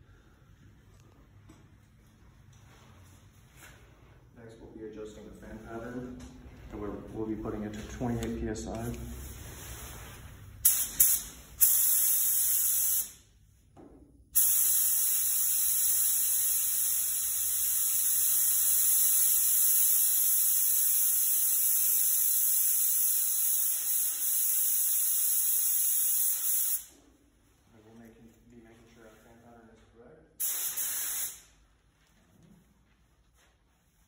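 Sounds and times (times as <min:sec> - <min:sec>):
paint spray gun hissing: 0:10.6 - 0:13.2, 0:14.4 - 0:26.9, 0:30.4 - 0:31.5.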